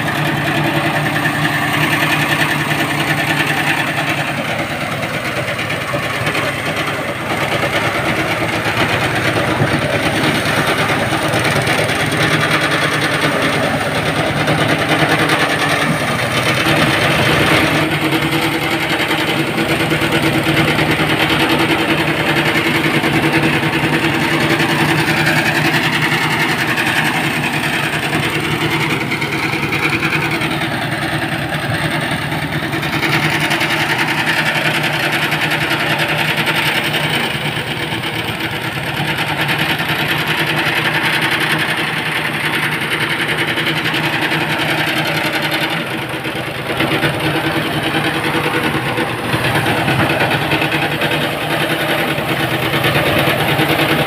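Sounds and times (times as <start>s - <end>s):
engine droning: 0.0s - 54.0s
threshing drum whirring and rattling: 0.0s - 54.0s.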